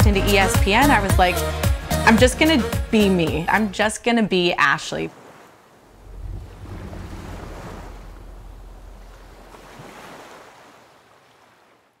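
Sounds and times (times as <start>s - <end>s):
wind: 4.3s - 12.0s
ocean surf: 5.1s - 11.8s
deep low rumble: 5.9s - 9.9s.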